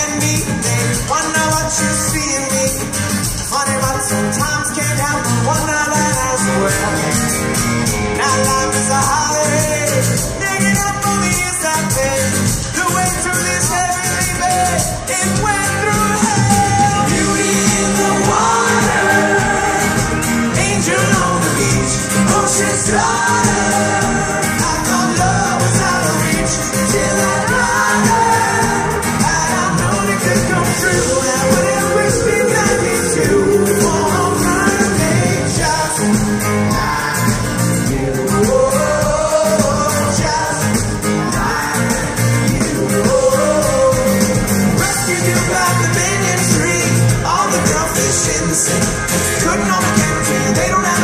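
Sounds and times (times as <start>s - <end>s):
drums: 0.0s - 51.0s
electric guitars: 0.0s - 51.0s
live pop-rock band: 0.0s - 51.0s
person singing: 12.9s - 51.0s.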